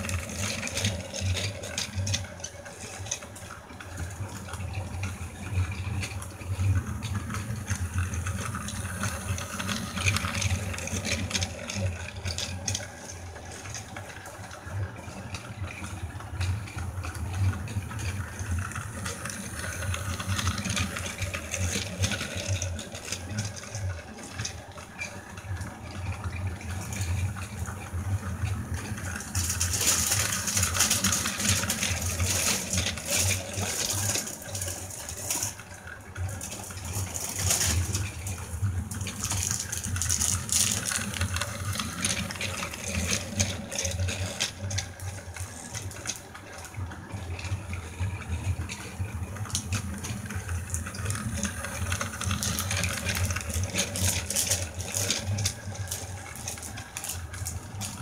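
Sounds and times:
toy train motor whirring: 0:00.0 - 0:58.0
toy wagons rattling: 0:15.8 - 0:25.8, 0:26.6 - 0:58.0.

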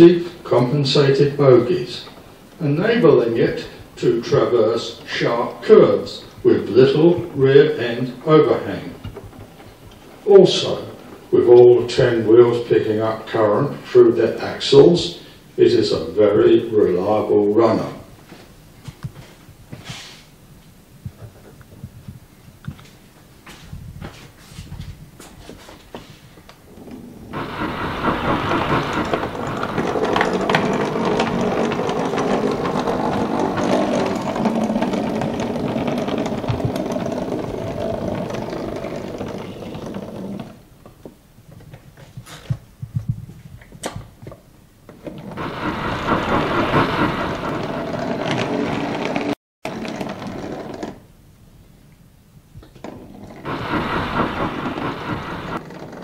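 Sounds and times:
sharp clicks of wheels on rail joints: 0:06.6 - 0:14.4, 0:26.4 - 0:41.1, 0:43.6 - 0:51.0, 0:52.6 - 0:56.0
model train motor whirring: 0:27.4 - 0:40.6, 0:45.4 - 0:50.6, 0:53.4 - 0:56.0.

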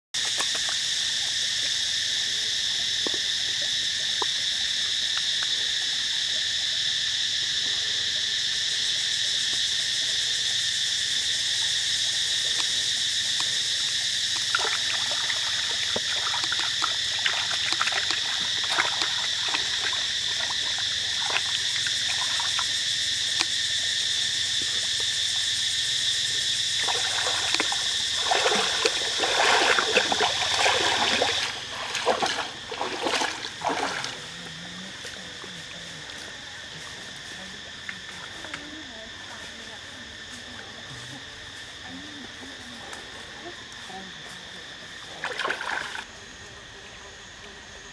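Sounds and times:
forest insects droning: 0:00.1 - 0:47.9
person wading in water: 0:12.4 - 0:23.4, 0:26.7 - 0:38.4, 0:44.9 - 0:46.1
hands splashing in stream water: 0:14.3 - 0:22.7, 0:26.8 - 0:34.3, 0:45.2 - 0:46.1.

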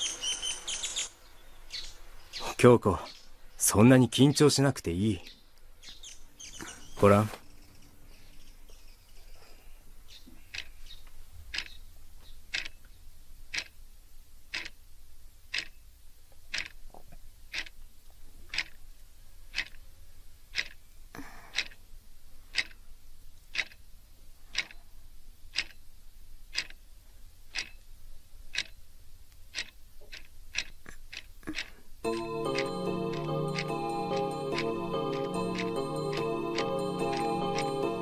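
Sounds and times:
pocket watch ticking: 0:10.2 - 0:11.8, 0:12.5 - 0:12.8, 0:13.5 - 0:13.8, 0:14.5 - 0:14.8, 0:15.5 - 0:15.8, 0:16.5 - 0:16.8, 0:17.5 - 0:17.8, 0:18.5 - 0:18.8, 0:19.5 - 0:19.8, 0:20.5 - 0:20.8, 0:21.5 - 0:21.8, 0:22.5 - 0:22.8, 0:23.5 - 0:23.8, 0:24.5 - 0:24.8, 0:25.5 - 0:25.8, 0:26.5 - 0:26.8, 0:27.5 - 0:27.9, 0:28.5 - 0:28.8, 0:29.5 - 0:38.0.

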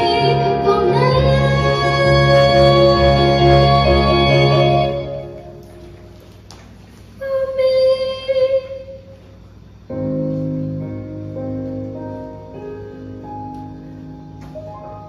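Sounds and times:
girl singing a long note: 0:00.0 - 0:05.6, 0:07.2 - 0:09.2
sustained keyboard chords: 0:00.0 - 0:06.4, 0:09.8 - 0:15.0.

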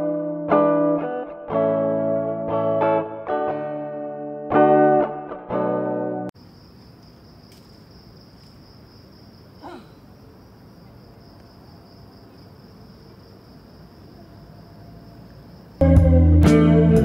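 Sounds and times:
faint outdoor hiss: 0:06.4 - 0:15.8
high-pitched insect chorus: 0:06.4 - 0:15.8.

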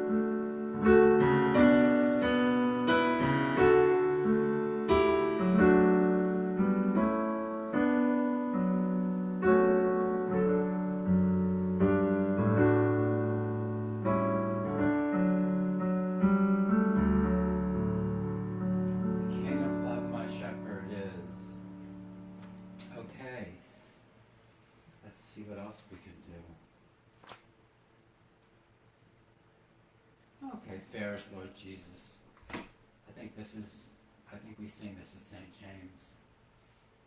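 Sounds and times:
digital piano playing hymn chords: 0:00.0 - 0:23.6.

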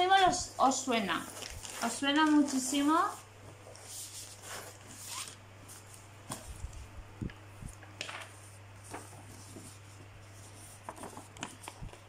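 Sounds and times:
steady low hum: 0:00.0 - 0:12.0
paper packaging rustling: 0:01.1 - 0:06.7, 0:08.0 - 0:12.0.

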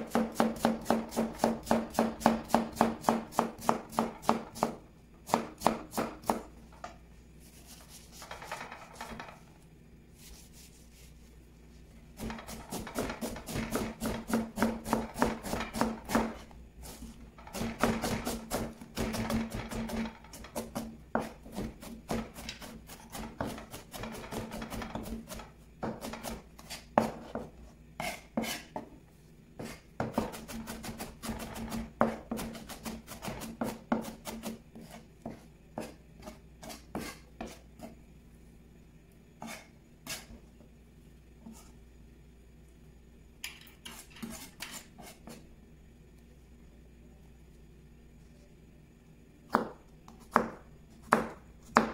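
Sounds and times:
knife chopping on plastic board: 0:00.0 - 0:06.5, 0:12.2 - 0:16.4, 0:17.5 - 0:28.9, 0:29.6 - 0:38.0, 0:49.5 - 0:51.9.

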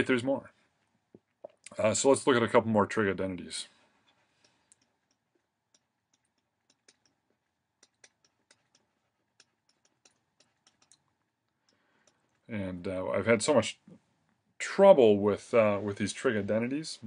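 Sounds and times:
stylus tapping on tablet screen: 0:04.4 - 0:12.3.

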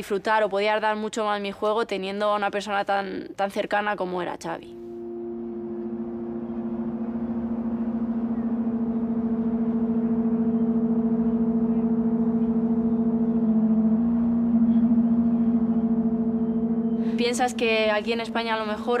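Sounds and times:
droning chord music: 0:04.7 - 0:19.0.

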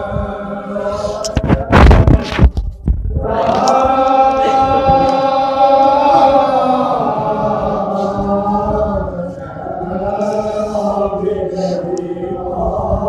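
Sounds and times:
men chanting in chorus: 0:00.0 - 0:02.1, 0:03.2 - 0:13.0
loud thumps: 0:01.3 - 0:05.1.

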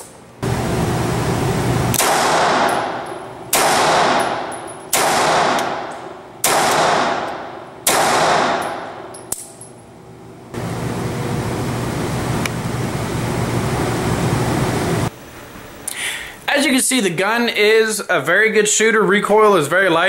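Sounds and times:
pistol shots echoing indoors: 0:01.9 - 0:09.7.

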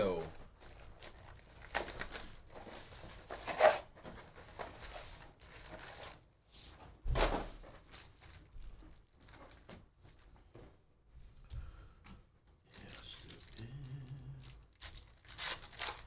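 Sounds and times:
foil packs rustling: 0:00.0 - 0:06.3, 0:07.2 - 0:10.3, 0:12.7 - 0:16.0
plastic shrink wrap crinkling: 0:00.0 - 0:06.3, 0:07.6 - 0:10.4, 0:12.4 - 0:16.0.

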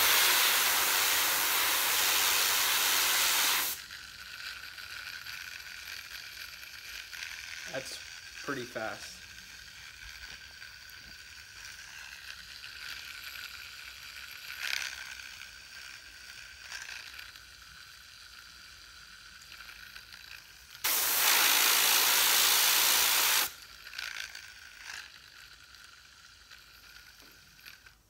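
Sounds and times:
compressed air hiss: 0:00.0 - 0:03.8, 0:20.8 - 0:23.6
fidget spinner whirring: 0:00.0 - 0:28.0.

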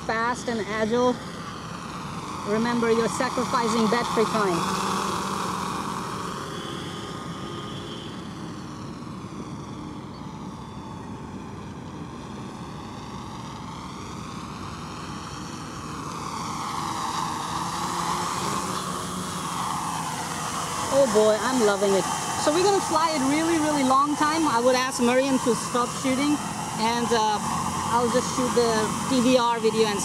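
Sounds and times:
quadcopter propellers buzzing: 0:00.0 - 0:30.0.

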